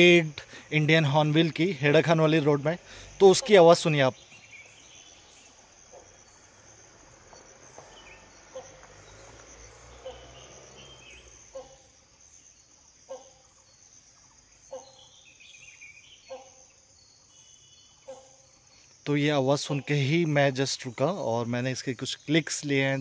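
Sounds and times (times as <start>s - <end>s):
high-pitched insect drone: 0.0s - 15.0s
hornbill barking call: 1.9s - 6.5s, 7.2s - 12.1s, 13.0s - 13.7s, 14.6s - 15.4s, 16.0s - 16.8s, 17.8s - 18.6s.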